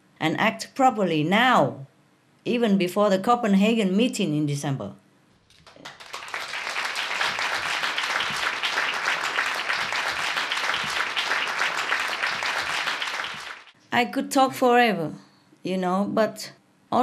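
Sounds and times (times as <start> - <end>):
audience applauding: 5.5 - 13.8.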